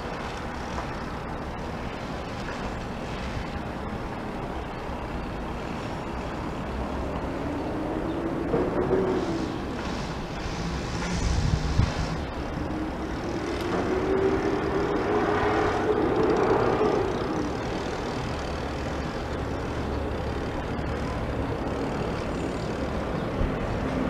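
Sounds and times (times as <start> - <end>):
low city rumble: 0.0 - 24.0
engine passing: 6.8 - 24.0.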